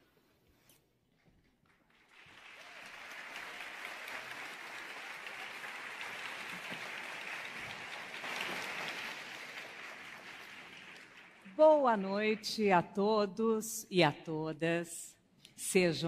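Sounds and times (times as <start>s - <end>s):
audience applauding: 1.7s - 12.4s.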